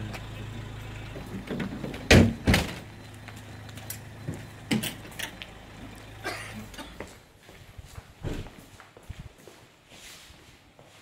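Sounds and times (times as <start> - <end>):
door banging: 1.3 - 2.9.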